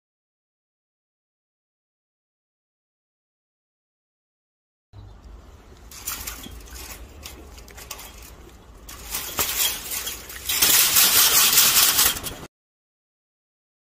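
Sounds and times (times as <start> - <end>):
monkey rustling at a fence: 5.2 - 12.5.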